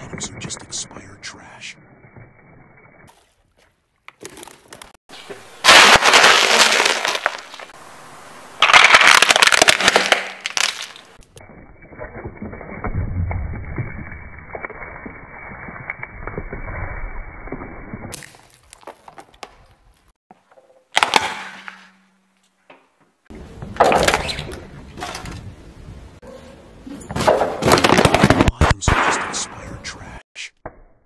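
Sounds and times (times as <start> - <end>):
tyre crushing small objects: 4.1 - 7.8, 8.6 - 11.3, 18.1 - 22.0, 27.2 - 28.6.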